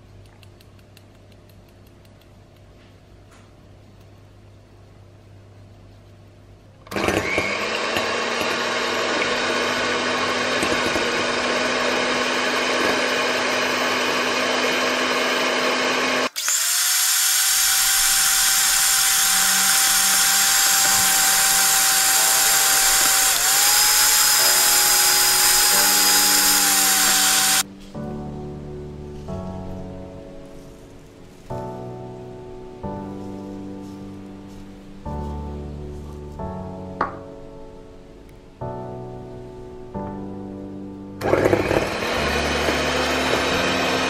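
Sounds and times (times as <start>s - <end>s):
electric hand mixer whirring: 6.9s - 27.7s, 41.2s - 44.0s.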